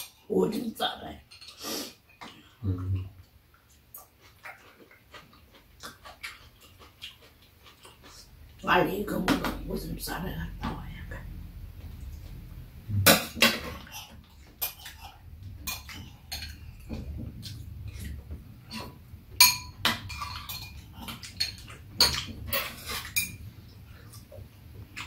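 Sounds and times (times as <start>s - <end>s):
spoons clinking against ceramic bowls: 19.4s - 23.4s.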